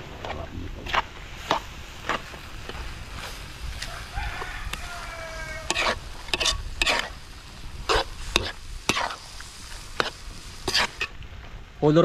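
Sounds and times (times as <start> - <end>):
food sizzling: 0.0 - 12.0
metal spatula scraping wok: 5.0 - 11.2.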